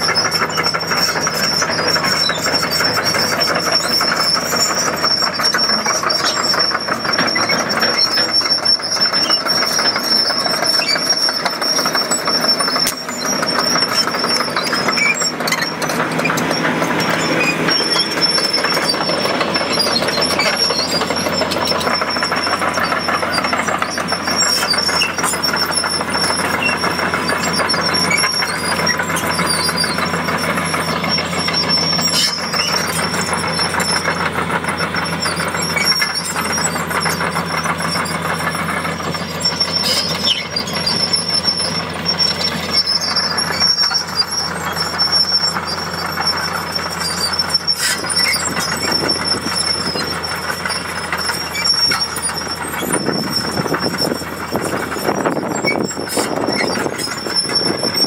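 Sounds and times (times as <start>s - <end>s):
excavator diesel engine: 0.0s - 58.0s
thin high-pitched squeal: 0.0s - 58.0s.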